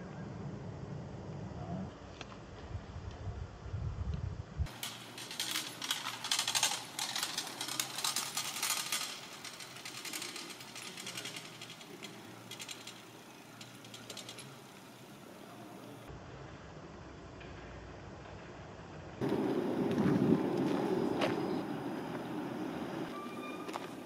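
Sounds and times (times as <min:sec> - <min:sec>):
dense mechanical clicking clatter: 0:04.7 - 0:15.0.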